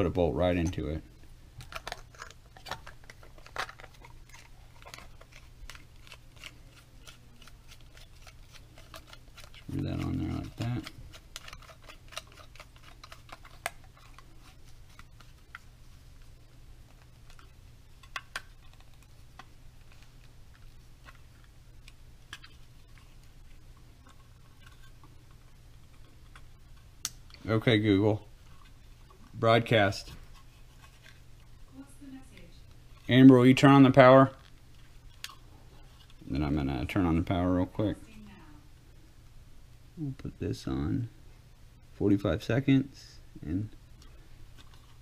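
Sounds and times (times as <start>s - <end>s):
low steady hum: 0.0s - 45.0s.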